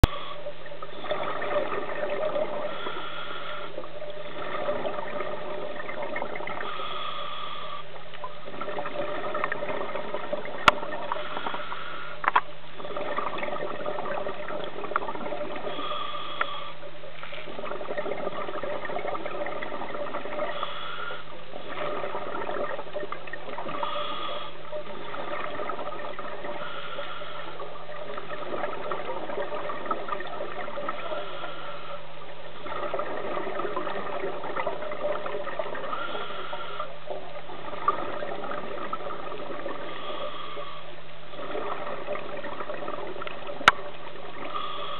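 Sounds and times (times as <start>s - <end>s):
scuba regulator breathing underwater: 2.4s - 5.0s, 6.4s - 8.0s, 11.0s - 12.3s, 15.5s - 16.9s, 20.3s - 22.2s, 23.6s - 25.4s, 26.4s - 27.7s, 30.8s - 33.0s, 35.6s - 37.1s, 39.4s - 42.0s, 44.4s - 44.9s.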